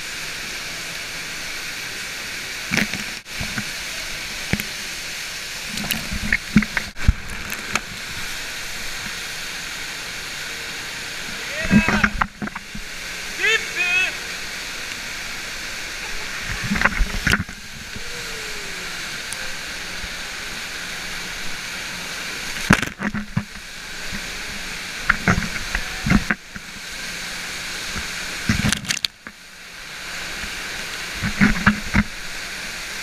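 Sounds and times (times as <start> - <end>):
water rushing: 0.0 - 33.0
sharp knocks and splashes: 2.6 - 5.0, 5.6 - 8.3, 16.4 - 17.9, 22.4 - 24.4, 27.9 - 29.4.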